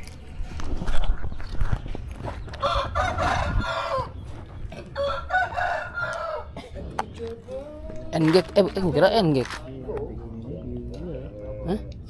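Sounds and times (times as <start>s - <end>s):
rooster crowing: 2.6s - 4.2s, 5.0s - 6.6s.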